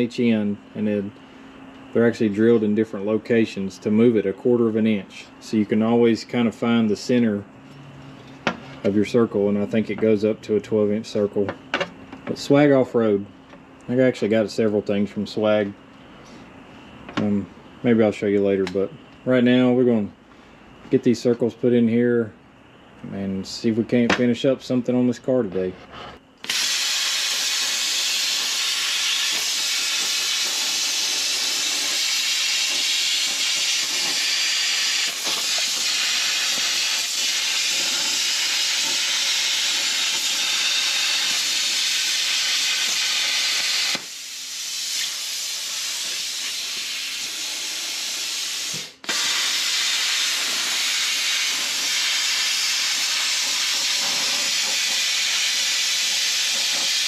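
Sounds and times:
plasma cutter hissing: 26.4 - 57.0.

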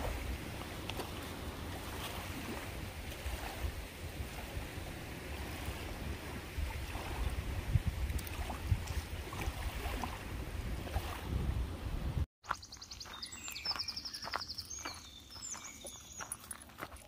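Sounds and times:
wind buffeting microphone: 0.0 - 12.2.

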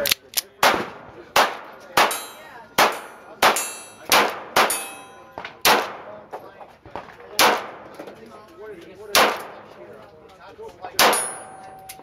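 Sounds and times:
pistol shots: 0.6 - 8.1, 9.1 - 9.8, 11.0 - 11.6
thin metallic ringing: 4.7 - 5.4.

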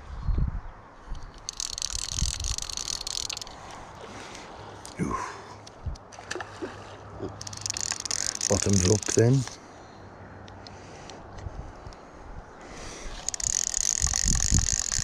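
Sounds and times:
fly reel ratcheting: 1.2 - 3.7, 7.4 - 9.6, 13.1 - 15.0.

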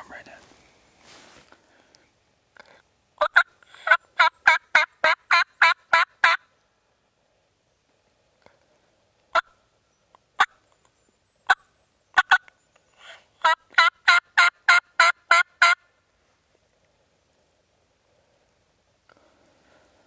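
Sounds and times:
turkey yelping: 3.2 - 6.4, 13.4 - 15.8.

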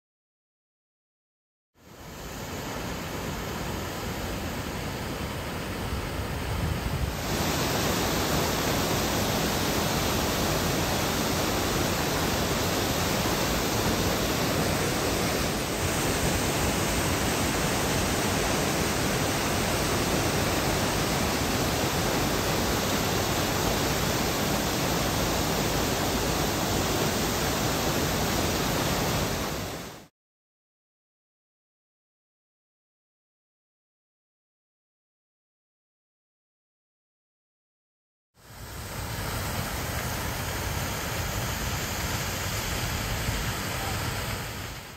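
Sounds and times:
waterfall rushing: 2.1 - 30.1, 38.4 - 44.9.

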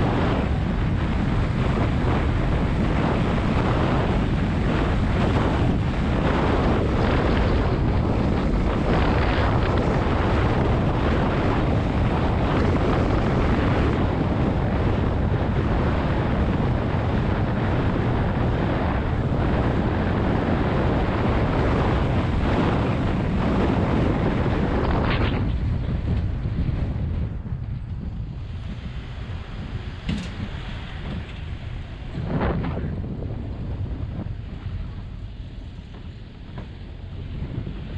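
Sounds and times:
truck road noise: 0.0 - 37.9
wind buffeting microphone: 0.0 - 37.9.

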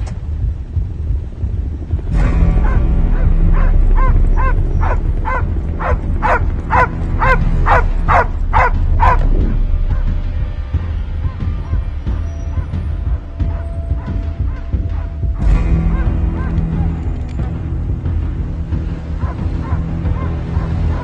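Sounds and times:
dog barking: 2.6 - 10.2, 11.2 - 17.2, 19.2 - 21.0.

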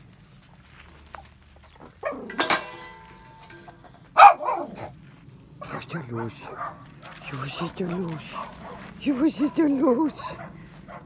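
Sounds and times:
dog yelping: 0.0 - 2.3, 4.2 - 4.9.

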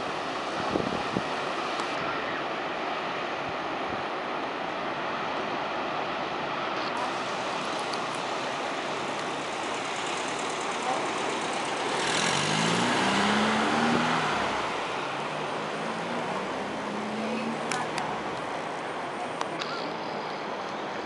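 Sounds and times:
distant surf: 0.0 - 21.0
car passing: 7.0 - 20.5.

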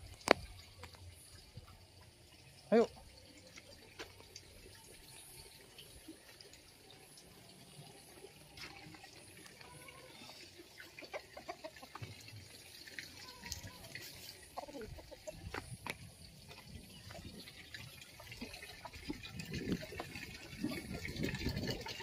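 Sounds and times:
chicken clucking: 10.2 - 12.2, 13.7 - 16.0
footsteps on dirt path: 15.4 - 17.4.

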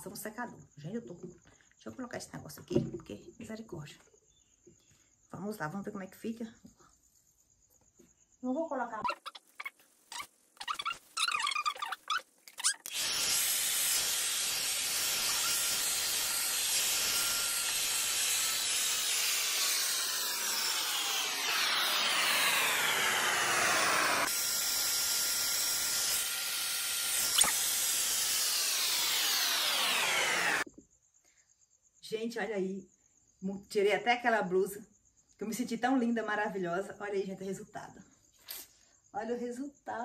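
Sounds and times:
hair dryer blowing: 12.9 - 30.7.

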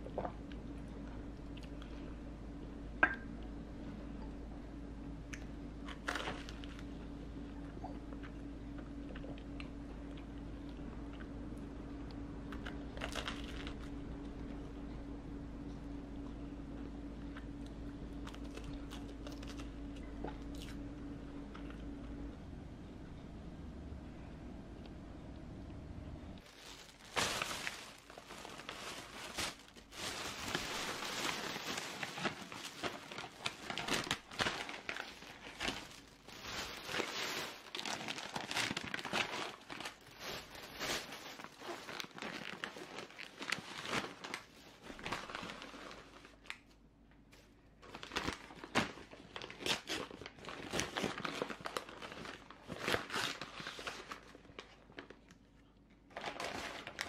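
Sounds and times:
plastic and paper bags crinkling: 5.8 - 6.9, 12.6 - 13.9, 26.4 - 46.7, 47.8 - 55.4, 56.0 - 57.0.

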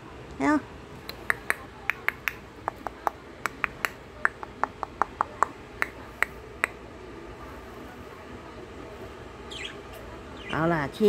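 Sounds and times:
budgerigars clicking and chirping: 9.5 - 10.6.

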